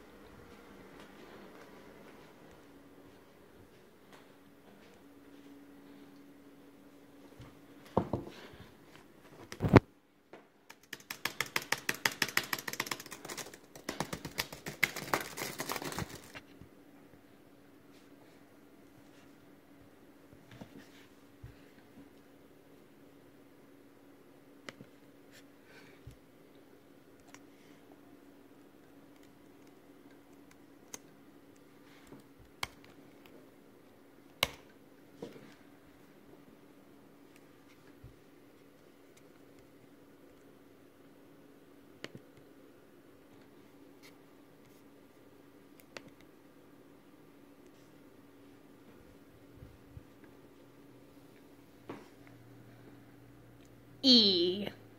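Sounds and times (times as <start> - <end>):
low steady hum: 0.0 - 11.9, 12.6 - 54.9
laptop keyboard typing: 10.7 - 16.4.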